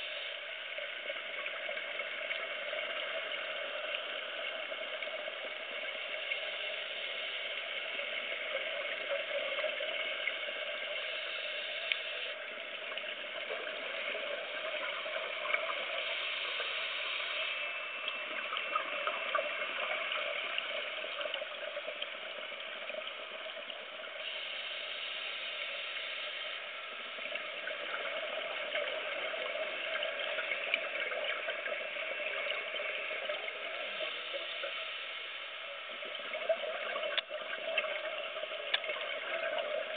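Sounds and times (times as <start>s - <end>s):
underwater hiss with crackles: 0.0s - 39.9s.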